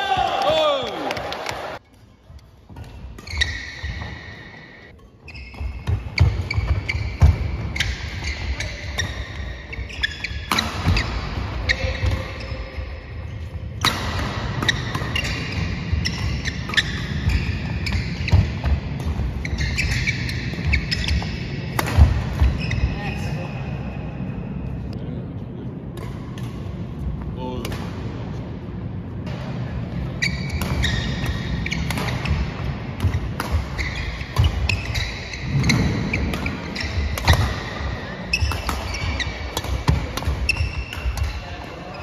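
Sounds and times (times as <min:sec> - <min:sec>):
shoes squeaking: 0:02.7 - 0:12.7, 0:13.8 - 0:23.6, 0:30.1 - 0:42.0
racket hitting shuttlecock: 0:10.0 - 0:12.3, 0:13.8 - 0:22.6, 0:30.3 - 0:41.4.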